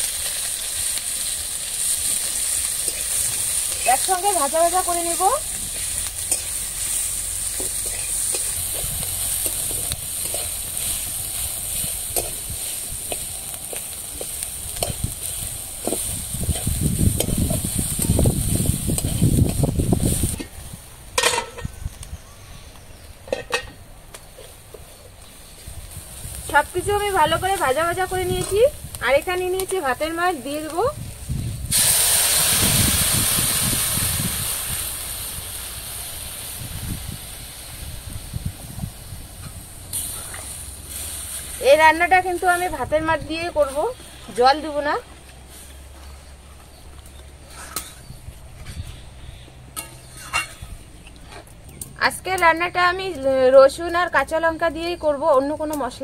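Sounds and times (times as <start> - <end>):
chillies sizzling in oil: 0.0 - 56.0
metal spatula scraping pan: 7.5 - 11.0, 47.4 - 49.1, 49.8 - 51.5.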